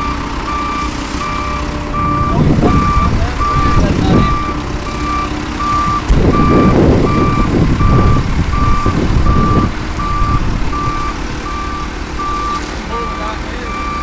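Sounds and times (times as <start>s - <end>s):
vehicle back-up alarm beeping: 0.0s - 14.0s
loud low rumble: 1.2s - 11.7s.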